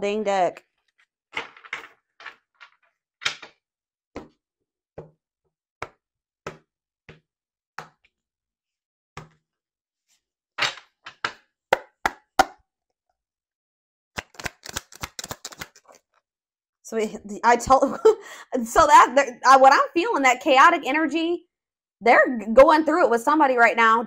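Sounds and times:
cards tapping on a table: 5.8 - 7.2, 9.2 - 9.4
cards being shuffled: 14.2 - 16.1.

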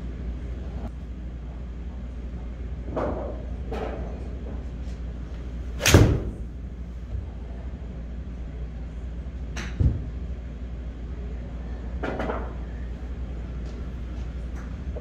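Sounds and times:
steady low hum: 0.0 - 15.0
golf club striking ball: 5.8 - 6.4.

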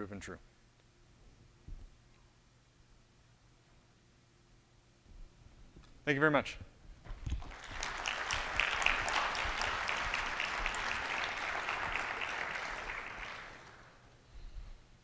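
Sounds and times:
audience applauding: 7.3 - 14.1.

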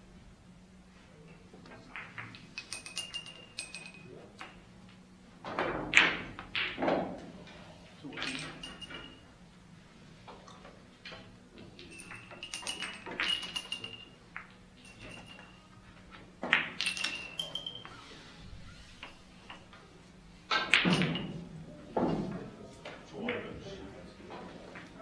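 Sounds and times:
billiard balls clicking: 1.9 - 7.3, 8.1 - 9.4, 10.2 - 18.1, 20.5 - 21.6.

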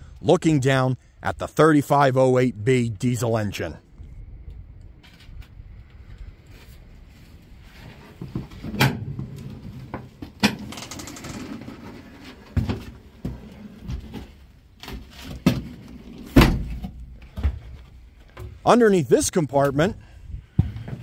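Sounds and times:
faint low rumble: 2.6 - 9.9
knocks and clunks: 12.4 - 18.6, 20.5 - 21.0.

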